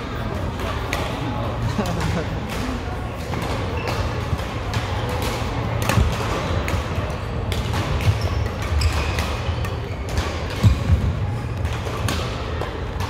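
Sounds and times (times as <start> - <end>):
shoes squeaking on court: 3.6 - 4.3, 8.0 - 11.0.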